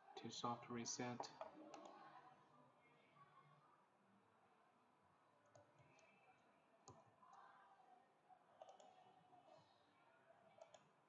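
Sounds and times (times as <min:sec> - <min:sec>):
computer mouse clicks: 0:01.2 - 0:02.0, 0:05.5 - 0:06.1, 0:08.6 - 0:09.1, 0:10.6 - 0:10.9.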